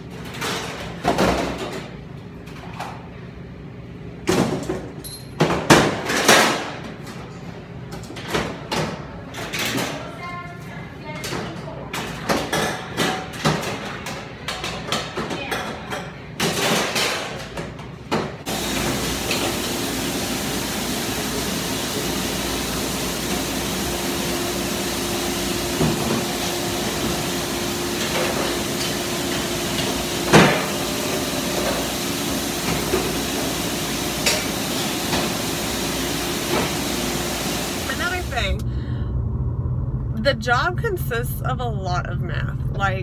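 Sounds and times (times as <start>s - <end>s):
machinery water rush with hum: 18.5s - 38.5s.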